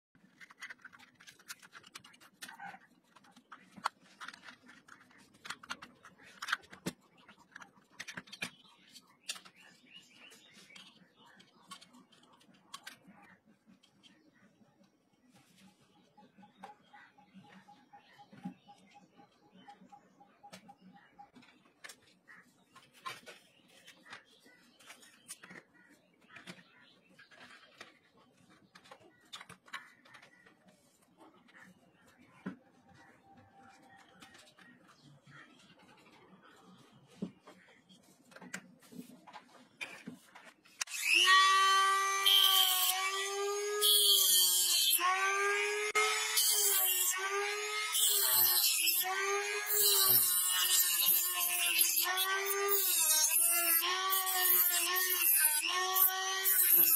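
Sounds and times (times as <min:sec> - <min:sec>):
plastic parts clicking: 0:00.2 - 0:09.7, 0:10.7 - 0:13.2, 0:24.1 - 0:30.7
scratches and rustles of handling: 0:00.2 - 0:16.2, 0:21.3 - 0:40.8
sharp plastic clicks: 0:27.3 - 0:30.6.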